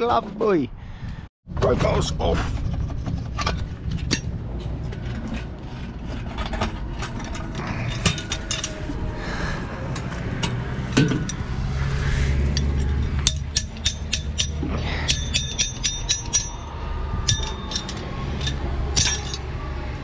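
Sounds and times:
low rumble: 0.7s - 20.0s
metal fittings clinking: 12.6s - 19.4s.

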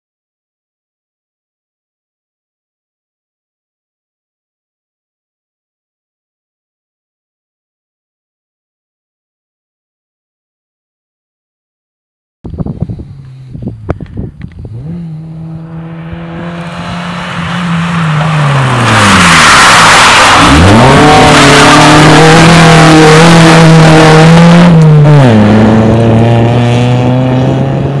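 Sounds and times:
rally car engine revving: 13.1s - 28.0s.

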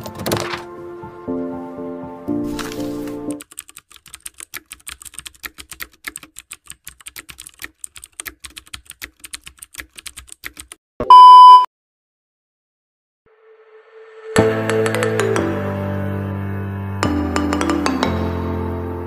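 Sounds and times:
keyboard typing clicks: 3.4s - 10.8s
electronic beep: 11.0s - 11.7s.

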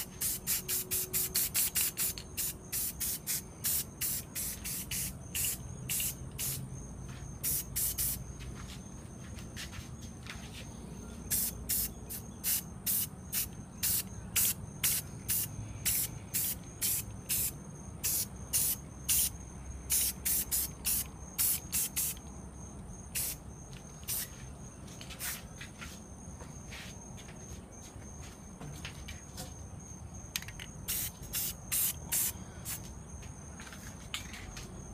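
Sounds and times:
spray paint can hissing: 0.0s - 6.6s, 7.4s - 8.2s, 11.3s - 19.3s, 19.9s - 22.2s, 23.1s - 23.4s, 24.0s - 24.3s, 30.8s - 32.8s.

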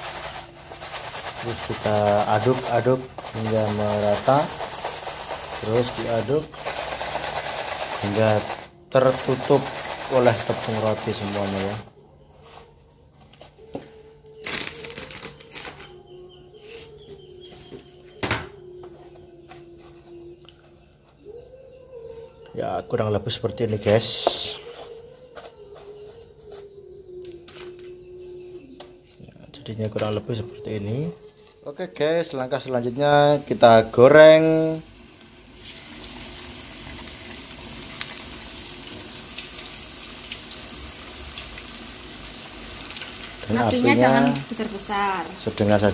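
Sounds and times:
breadcrumbs rustling in plastic tub: 0.0s - 12.7s
deep-frying sizzle with pops: 34.8s - 45.9s.

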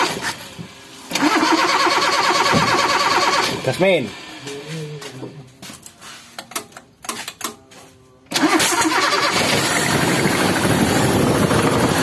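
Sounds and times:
petrol engine starting and running: 0.0s - 5.2s, 8.3s - 12.0s.

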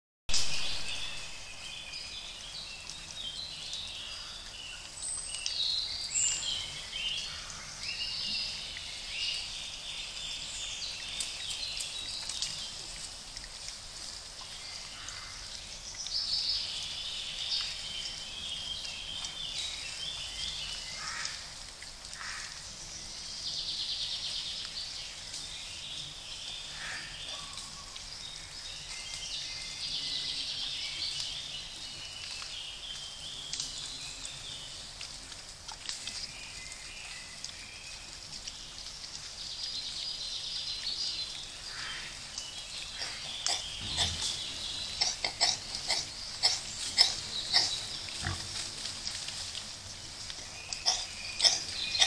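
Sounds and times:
steady background hiss: 0.3s - 52.0s
birds singing: 0.4s - 13.1s, 14.4s - 21.5s, 22.2s - 35.0s, 36.1s - 48.7s, 49.9s - 52.0s.

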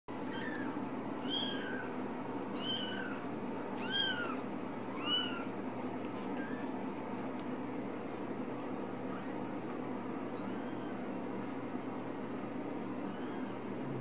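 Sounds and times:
steady low hum: 0.1s - 14.0s
kitten meowing: 0.2s - 1.9s, 2.5s - 3.2s, 3.8s - 5.5s, 10.3s - 11.0s.

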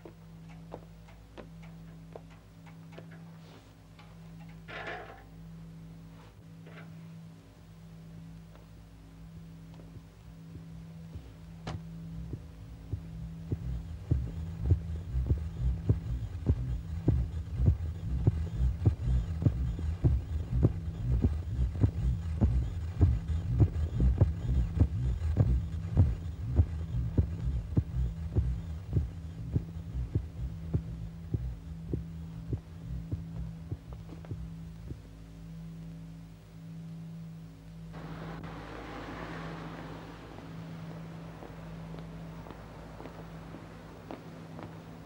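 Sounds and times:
steady low hum: 0.0s - 45.0s
heartbeat thuds: 9.8s - 35.1s.

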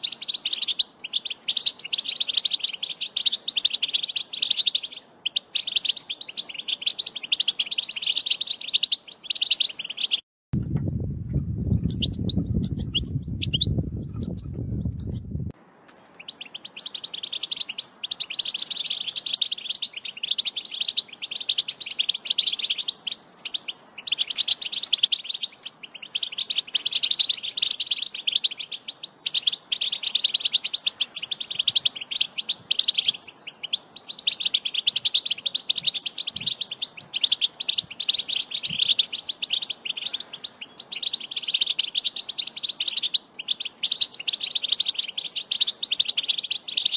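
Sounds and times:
goldfinch twittering: 0.0s - 10.2s, 11.8s - 15.3s, 16.0s - 46.9s
scattered chirps: 0.0s - 10.2s, 11.7s - 46.9s
low rumble: 10.6s - 15.5s.

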